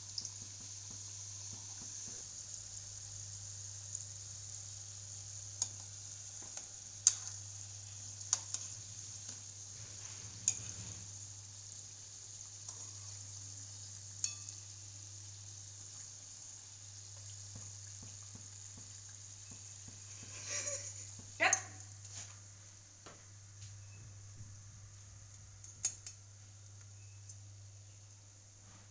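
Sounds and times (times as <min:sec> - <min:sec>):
food sizzling in hot oil: 0:00.0 - 0:22.1
low steady hum: 0:00.0 - 0:28.9
metal spoon clinking against pan: 0:14.2 - 0:14.6.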